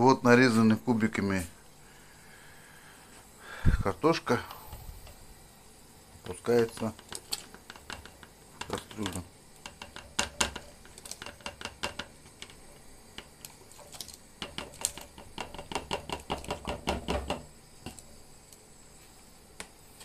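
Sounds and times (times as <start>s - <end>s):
potatoes plopping into boiling pot: 6.3s - 18.7s.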